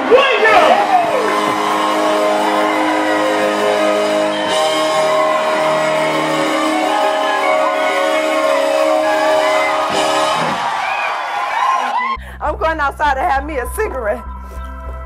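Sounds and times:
electric bass line: 0.0 - 10.9
held band chords: 0.3 - 11.0.

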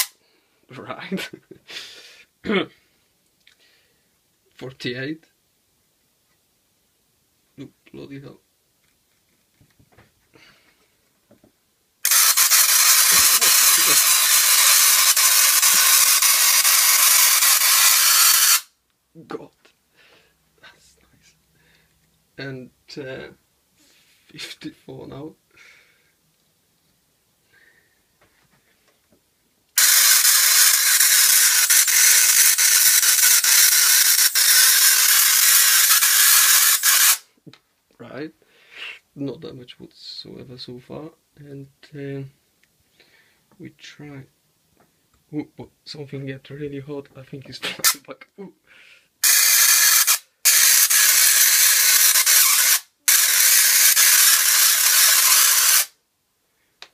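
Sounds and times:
sharp spark cracks: 12.0 - 18.7
tesla coil spark crackling: 12.0 - 18.7.

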